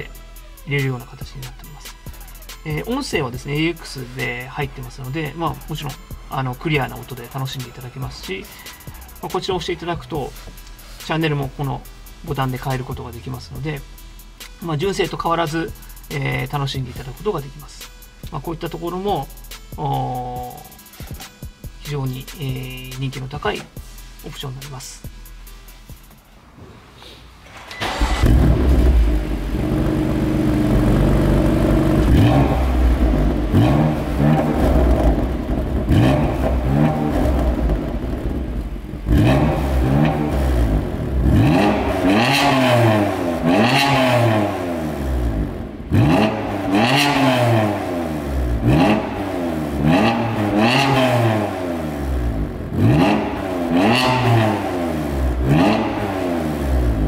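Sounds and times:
car engine starting and idling: 0:00.0 - 0:17.6, 0:25.3 - 0:57.0
car engine revving: 0:27.5 - 0:57.0.

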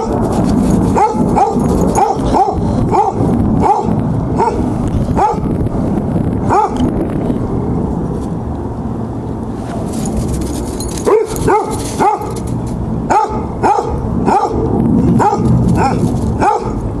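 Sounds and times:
hound barking: 0:00.9 - 0:05.5, 0:06.5 - 0:06.8, 0:11.0 - 0:12.4, 0:13.1 - 0:16.8.

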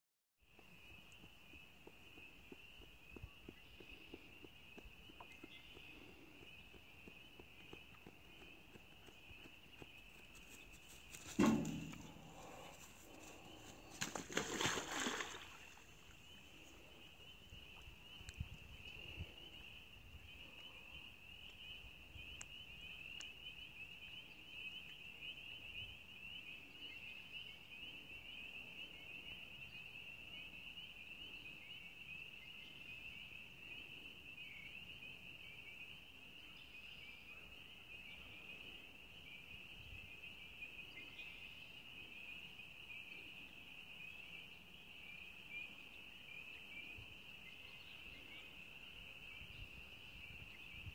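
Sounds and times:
animal splashing into water: 0:11.4 - 0:16.3
water lapping: 0:12.0 - 0:16.7.

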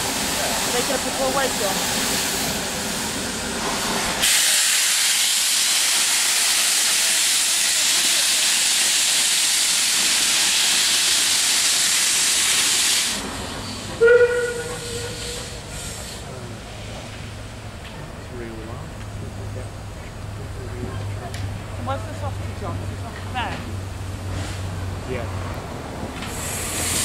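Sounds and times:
steam safety valves hissing: 0:01.9 - 0:17.1, 0:26.2 - 0:27.0
steam whistle toot: 0:14.0 - 0:15.6.

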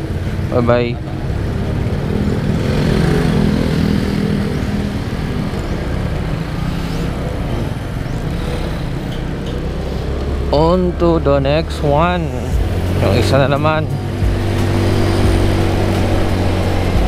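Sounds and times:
scooter engine pulling away: 0:00.0 - 0:17.0.

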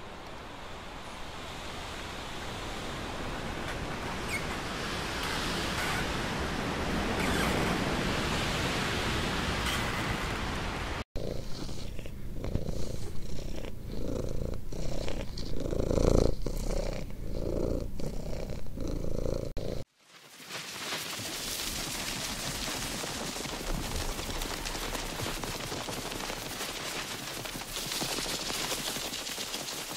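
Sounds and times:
cat purring: 0:11.2 - 0:19.9.

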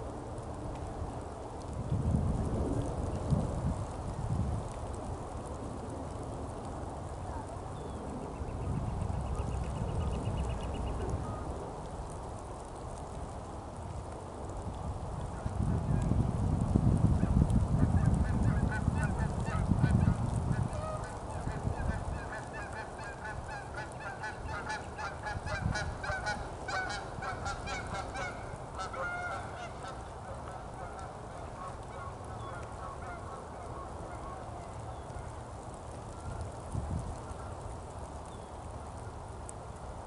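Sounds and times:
waterfowl calling: 0:17.9 - 0:35.4.

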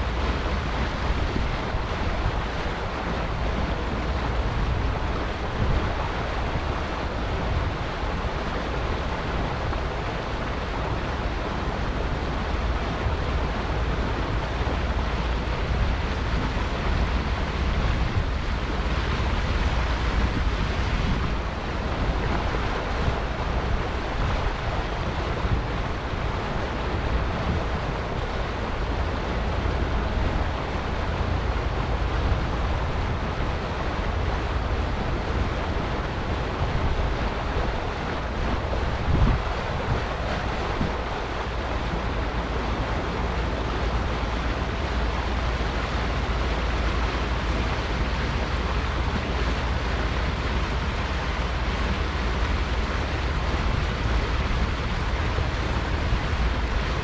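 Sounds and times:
boat water wash: 0:00.0 - 0:57.0
deep engine rumble: 0:00.0 - 0:57.0
wind buffeting microphone: 0:00.0 - 0:57.0.

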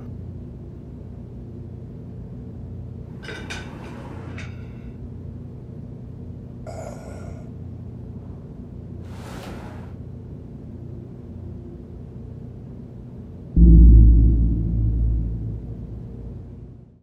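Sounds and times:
low steady hum: 0:13.6 - 0:16.9.

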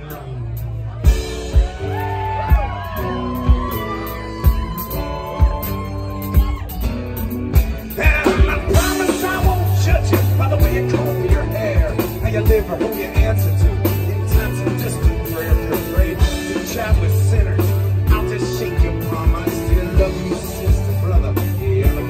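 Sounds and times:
bass guitar: 0:00.0 - 0:22.0
lead melody line: 0:00.0 - 0:22.0
steady drum beat: 0:00.0 - 0:22.0.

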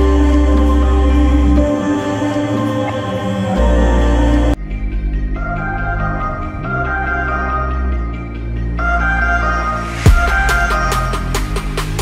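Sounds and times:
steady low bass: 0:00.0 - 0:08.8
held electronic chords: 0:00.0 - 0:12.0.

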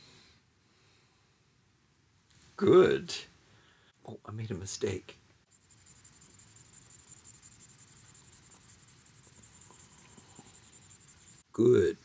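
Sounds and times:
stylus scratching on tablet: 0:05.5 - 0:11.4.

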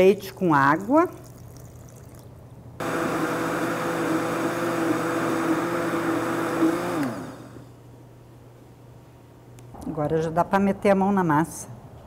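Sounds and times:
blender running: 0:02.8 - 0:07.7.

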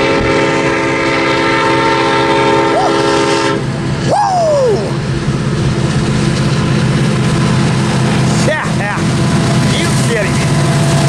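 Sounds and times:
locomotive air horn chord: 0:00.0 - 0:03.8
diesel engines droning low: 0:00.0 - 0:11.0.

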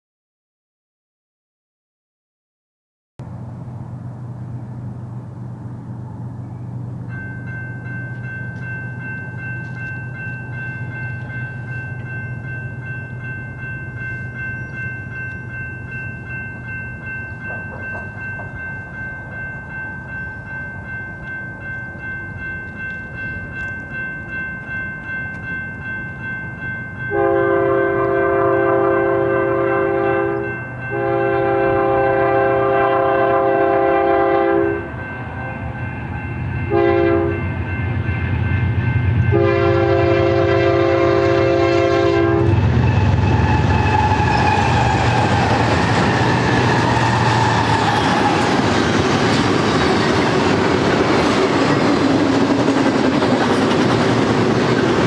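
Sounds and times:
crossing warning bell ringing: 0:05.7 - 0:55.0
locomotive air horn blasts: 0:27.1 - 0:34.9, 0:36.7 - 0:37.4, 0:39.3 - 0:45.1.

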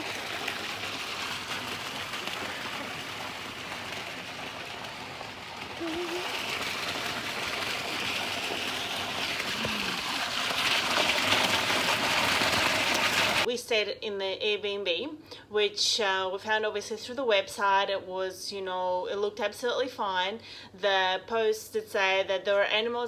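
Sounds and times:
water pouring into pool: 0:00.0 - 0:13.5.

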